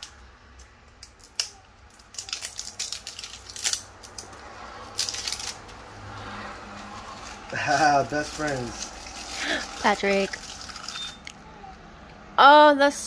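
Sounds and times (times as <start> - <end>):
plastic packaging crinkling: 1.0 - 5.8, 6.7 - 11.3.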